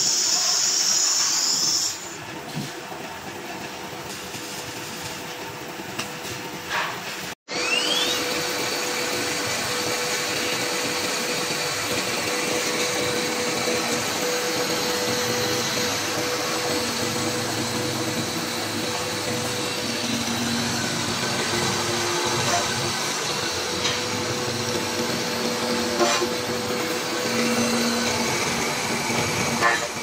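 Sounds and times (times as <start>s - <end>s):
cnc router whirring with whine: 7.5s - 30.0s.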